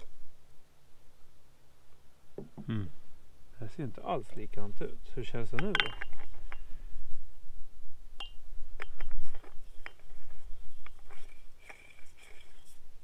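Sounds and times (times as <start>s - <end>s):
metallic clicks and clinks: 5.5s - 6.6s.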